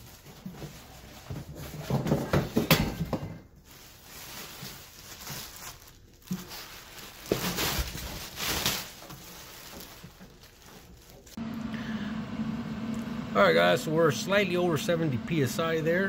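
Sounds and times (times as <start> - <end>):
plastic bag crinkling: 3.6 - 11.4.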